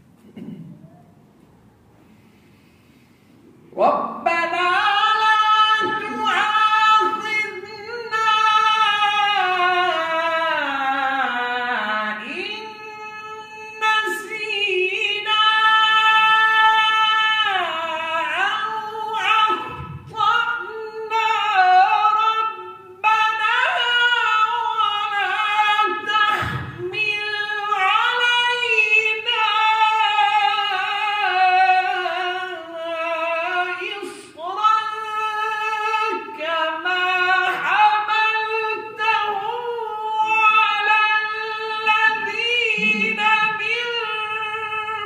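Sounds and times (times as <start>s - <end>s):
man reciting melodically: 3.7s - 45.0s.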